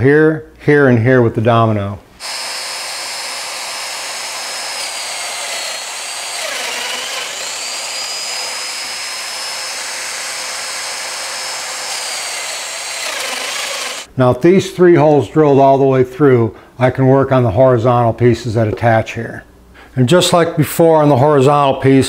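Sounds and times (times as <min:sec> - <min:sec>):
joiner machine whining: 0:02.2 - 0:14.1.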